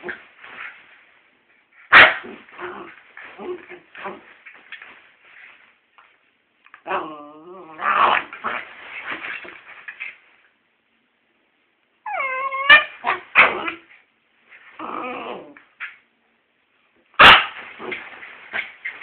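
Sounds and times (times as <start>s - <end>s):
puppies whining: 12.1s - 13.0s
puppy yelping: 12.1s - 13.8s.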